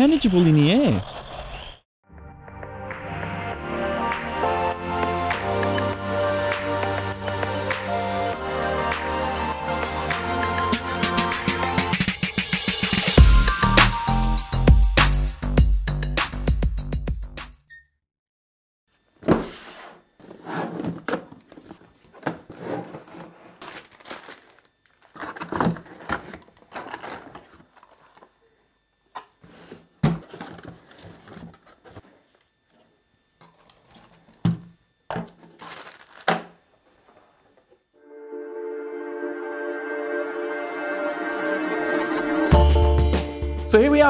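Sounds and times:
cardboard and plastic rustling: 19.2s - 28.5s, 29.1s - 32.5s, 33.4s - 37.7s.

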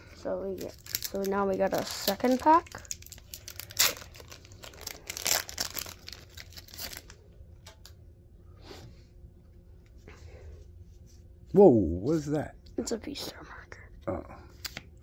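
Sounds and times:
foil wrapper tearing: 0.4s - 7.2s
foil wrapper crinkling: 0.4s - 7.8s.

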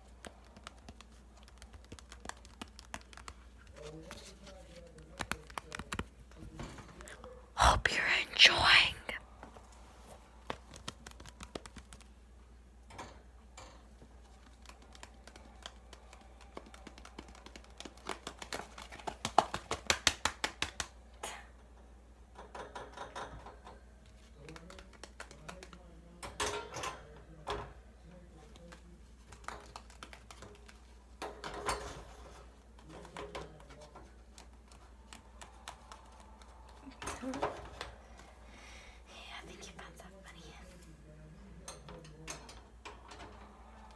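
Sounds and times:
plastic packaging taps and clicks: 10.4s - 12.1s, 14.4s - 20.9s.

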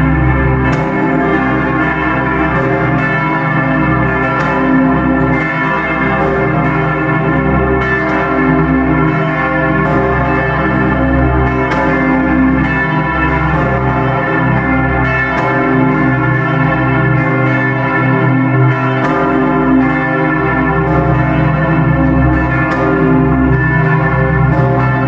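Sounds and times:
church bells ringing: 0.0s - 25.0s.

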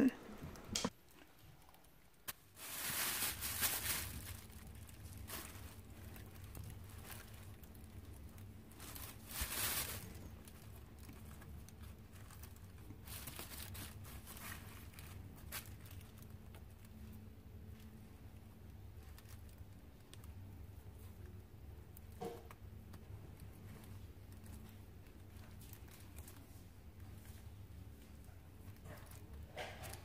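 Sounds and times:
low steady hum: 0.0s - 30.0s
plastic bag crinkling: 1.8s - 21.1s.

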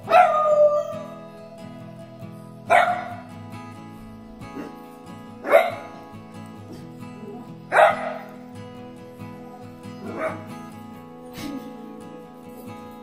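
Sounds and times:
puppy barking: 0.0s - 1.1s, 2.7s - 3.2s, 5.4s - 6.0s, 6.7s - 8.4s, 10.0s - 10.6s
acoustic guitar music: 0.0s - 13.0s.

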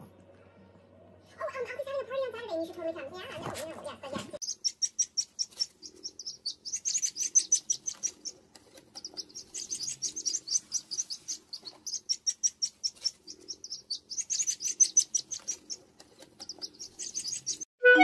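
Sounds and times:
ducklings peeping: 4.4s - 17.7s.

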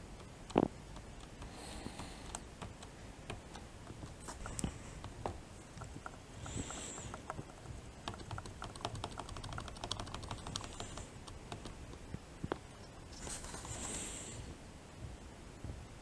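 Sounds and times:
plastic timer buttons clicking: 0.2s - 5.2s, 5.8s - 12.0s.

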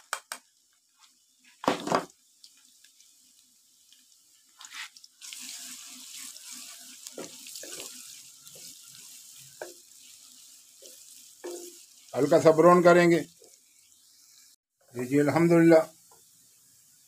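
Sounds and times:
onions sizzling in a wok: 0.0s - 17.0s
wooden spatula scraping a pan: 4.6s - 12.4s.

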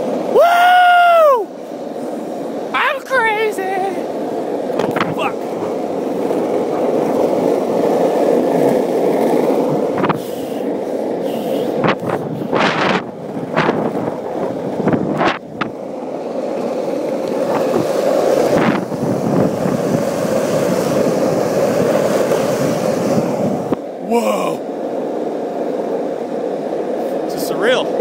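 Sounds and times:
wheels rolling over pavement: 0.0s - 28.0s.

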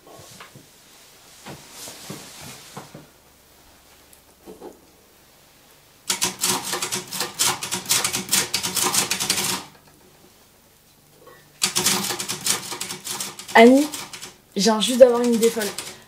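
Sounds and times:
typewriter typing fast: 6.1s - 9.8s, 11.6s - 16.0s.

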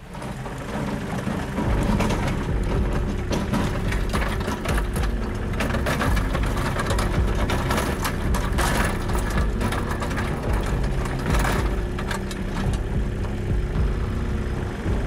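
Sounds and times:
tractor engine running: 0.0s - 15.0s.

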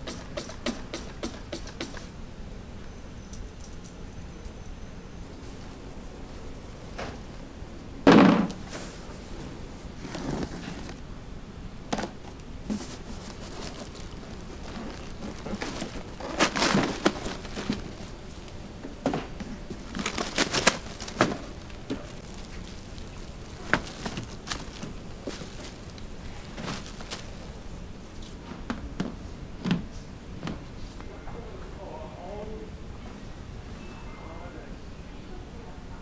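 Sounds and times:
crinkling handling noises: 8.5s - 11.1s, 11.9s - 31.1s.

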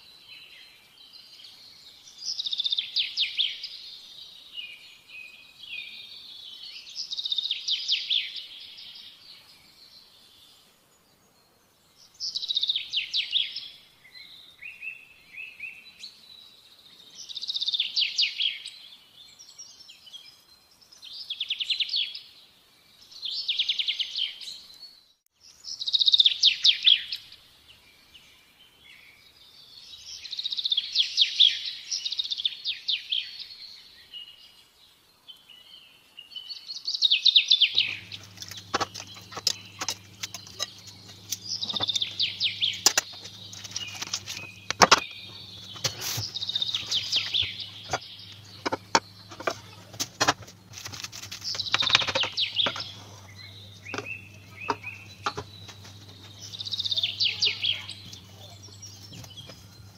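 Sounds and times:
songbird chirping and trilling: 0.0s - 59.9s
steady low hum: 37.8s - 59.9s
kitchen utensils clicking and knocking: 38.0s - 53.2s, 53.9s - 55.6s.

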